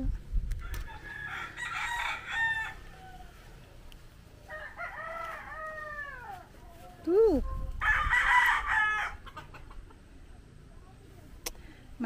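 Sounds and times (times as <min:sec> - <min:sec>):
roosters crowing: 0:00.6 - 0:07.0, 0:07.7 - 0:09.8.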